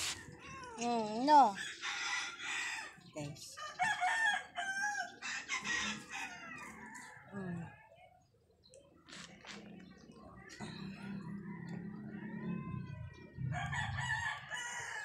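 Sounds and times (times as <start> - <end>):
rooster crowing: 1.6 - 3.0, 3.6 - 7.4, 10.7 - 15.0.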